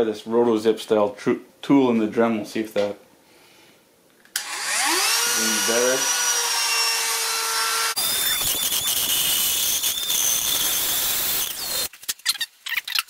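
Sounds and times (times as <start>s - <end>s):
rotary tool cutting plastic: 4.4s - 13.0s.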